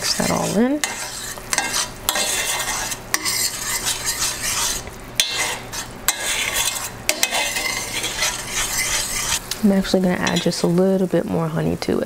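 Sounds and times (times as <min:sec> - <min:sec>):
sauce sizzling in a pan: 0:00.0 - 0:12.0
utensil clinking against pan: 0:00.1 - 0:09.4.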